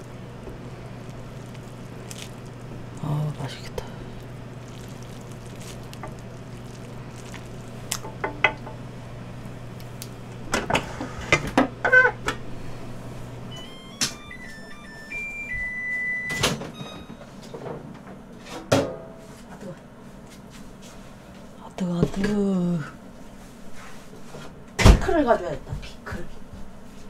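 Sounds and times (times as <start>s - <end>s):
steady low hum: 0.0s - 24.4s
microwave beeps: 13.5s - 17.7s.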